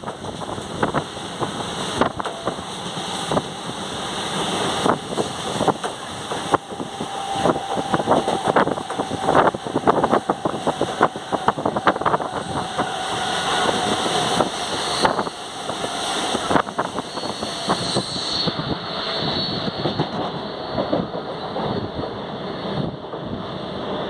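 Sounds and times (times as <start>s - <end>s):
sharp rail clacks: 0.0s - 3.5s
train wheels rumbling on rail: 0.0s - 24.0s.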